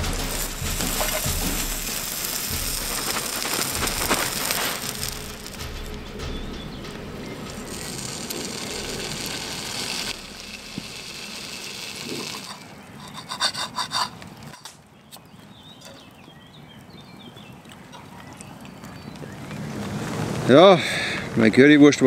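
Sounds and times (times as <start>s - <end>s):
steady hiss: 0.0s - 13.8s
cutlery scraping a metal plate: 12.0s - 14.7s.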